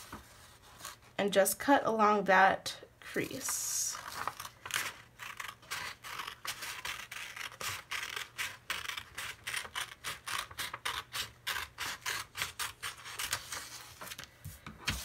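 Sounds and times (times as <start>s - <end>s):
scissors snipping paper: 4.1s - 13.8s.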